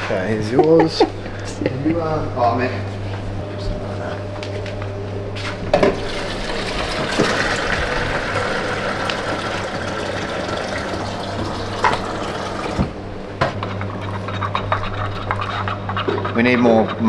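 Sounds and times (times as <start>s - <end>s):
tap water running into a cup: 5.9s - 12.9s.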